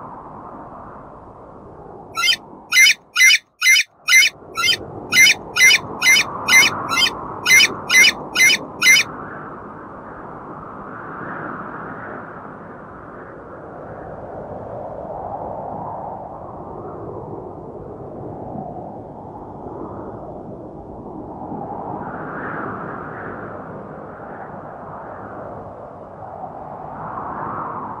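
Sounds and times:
short high animal calls: 0:02.2 - 0:09.1.

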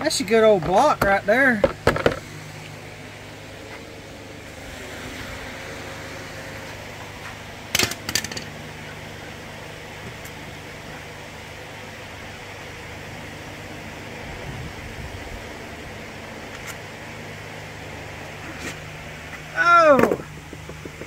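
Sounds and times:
mechanical hum: 0:00.0 - 0:21.0.

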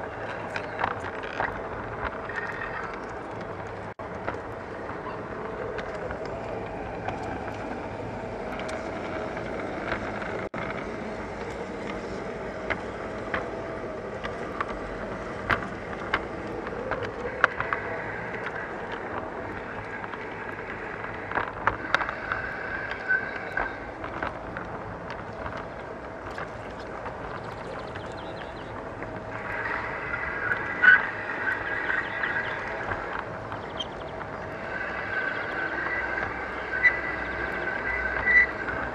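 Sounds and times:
wheels clicking on rails: 0:00.0 - 0:38.9
high squeal: 0:17.0 - 0:24.4, 0:27.2 - 0:38.9.

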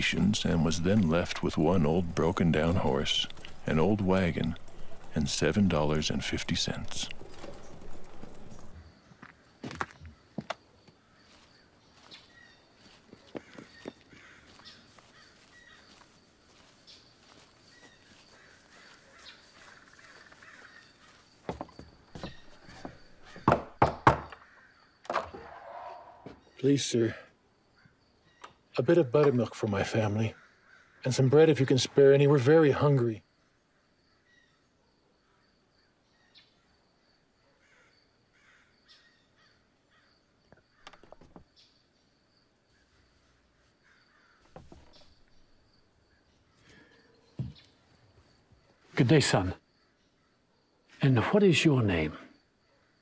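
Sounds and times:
birds calling: 0:00.0 - 0:34.7, 0:37.5 - 0:42.0, 0:42.6 - 0:53.0
insect trill: 0:00.0 - 0:53.0
knock on a wooden door: 0:23.4 - 0:24.4.

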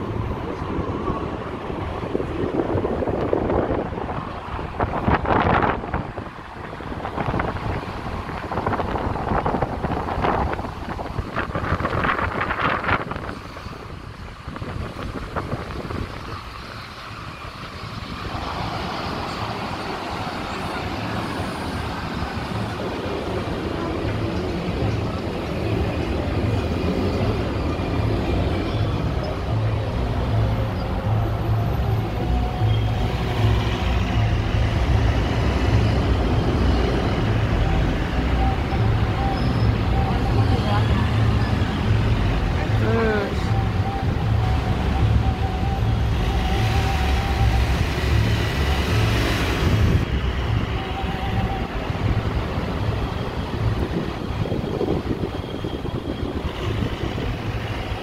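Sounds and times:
vehicle engine and road rumble: 0:00.0 - 0:58.0.

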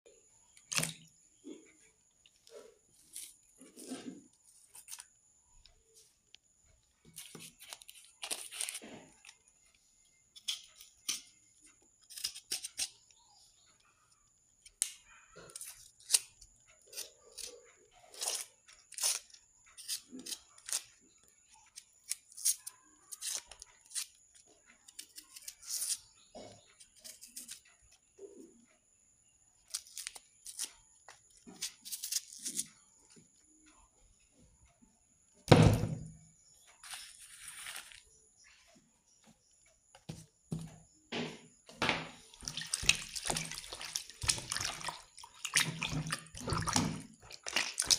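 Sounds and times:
knife scraping onion skin: 0:07.2 - 0:08.8, 0:12.0 - 0:12.9, 0:15.5 - 0:20.9, 0:22.0 - 0:24.2, 0:24.9 - 0:26.0, 0:27.0 - 0:27.6, 0:29.7 - 0:30.7, 0:31.5 - 0:32.7.

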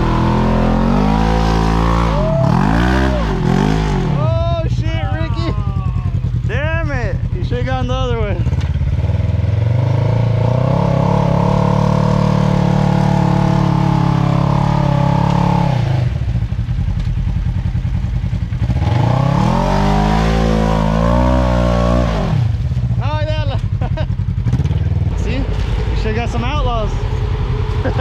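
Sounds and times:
engine revving hard: 0:00.0 - 0:05.3, 0:08.4 - 0:16.2, 0:18.6 - 0:22.6
tires spinning through mud: 0:00.0 - 0:05.5, 0:08.4 - 0:17.1, 0:18.6 - 0:28.0.

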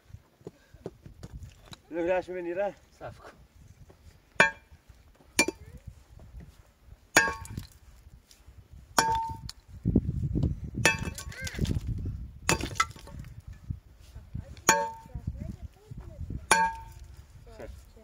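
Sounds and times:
sledgehammer striking rock: 0:04.4 - 0:04.7, 0:07.2 - 0:07.8, 0:09.0 - 0:09.5, 0:10.8 - 0:11.4, 0:12.5 - 0:13.2, 0:14.6 - 0:15.1, 0:16.5 - 0:17.0.

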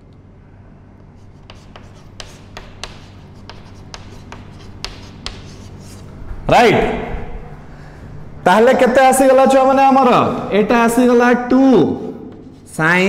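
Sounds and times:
faint low hum: 0:00.0 - 0:13.0
pen tapping and scratching: 0:01.4 - 0:06.0.

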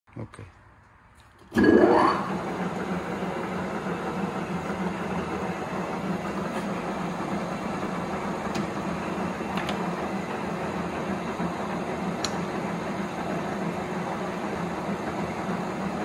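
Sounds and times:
lathe motor humming: 0:01.5 - 0:16.0.

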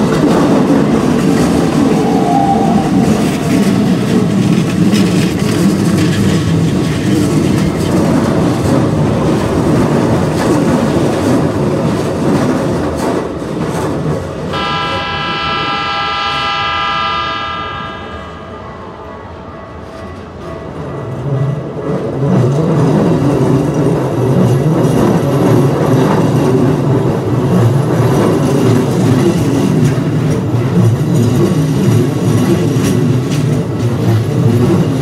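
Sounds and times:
train wheels clattering over rails: 0:00.0 - 0:14.6, 0:19.8 - 0:35.0
train horn blast: 0:14.5 - 0:20.2.

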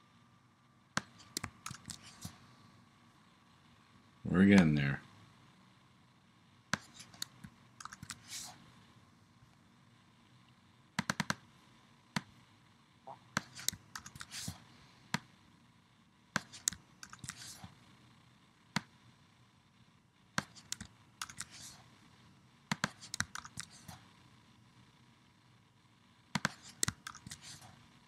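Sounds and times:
computer mouse clicks: 0:01.0 - 0:02.4, 0:06.7 - 0:08.4, 0:11.0 - 0:11.4, 0:13.3 - 0:14.5, 0:16.4 - 0:17.7, 0:20.4 - 0:21.8, 0:22.7 - 0:23.9, 0:26.3 - 0:27.6.

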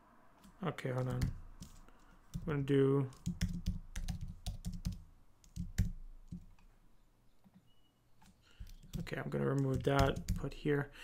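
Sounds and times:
computer keyboard typing: 0:01.0 - 0:06.5, 0:08.6 - 0:10.5.

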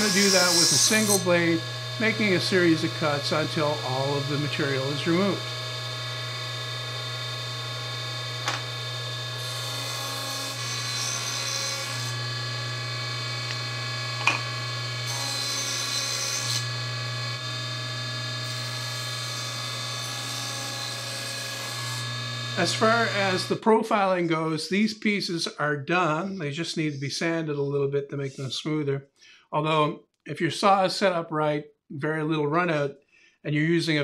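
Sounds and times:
saw blade cutting hiss: 0:00.0 - 0:03.0
table saw whining: 0:00.0 - 0:23.6.

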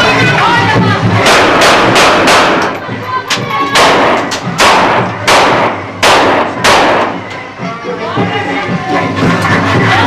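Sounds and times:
loud gunshots with echo: 0:01.2 - 0:02.8, 0:03.8 - 0:07.2.

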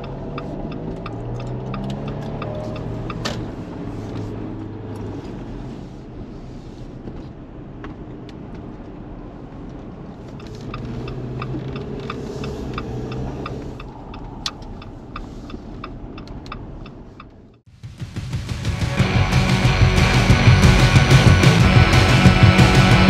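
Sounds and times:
turn signal ticking: 0:00.0 - 0:17.7
car engine and road rumble: 0:00.0 - 0:23.0.

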